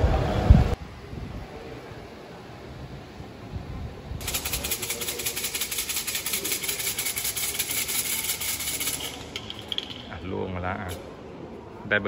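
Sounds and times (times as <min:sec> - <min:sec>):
fortune sticks rattling in cylinder: 0:04.2 - 0:10.3.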